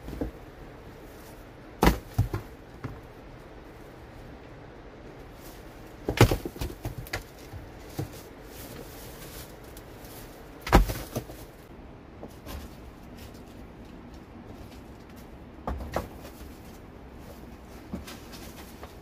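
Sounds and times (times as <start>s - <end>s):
rocks knocking: 1.8s - 3.1s, 6.0s - 8.2s, 10.6s - 11.5s.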